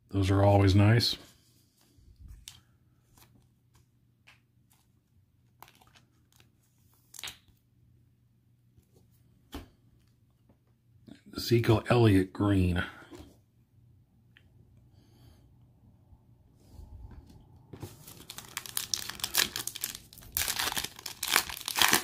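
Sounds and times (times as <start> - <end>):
trading card rustling into plastic sleeve: 1.8 - 7.6, 17.8 - 22.0.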